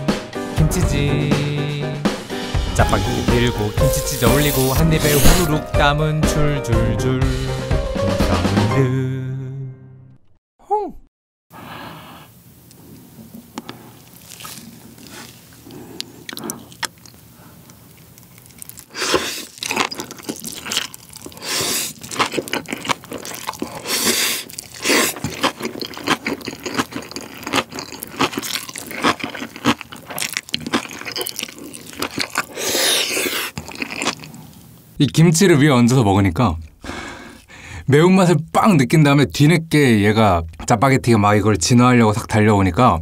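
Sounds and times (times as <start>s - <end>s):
slurping noodles: 2.9s - 5.6s, 13.3s - 34.6s
crunchy chewing: 3.8s - 5.6s, 12.7s - 34.8s.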